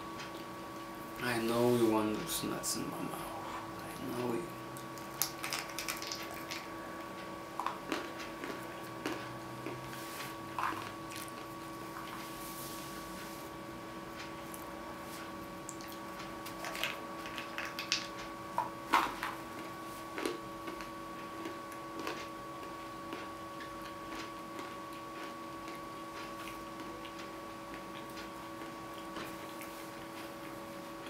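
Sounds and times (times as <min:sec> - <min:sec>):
steady hum: 0:00.0 - 0:31.0
peanuts crunching: 0:05.0 - 0:06.7, 0:07.6 - 0:09.8
chewing clicks: 0:07.6 - 0:09.8.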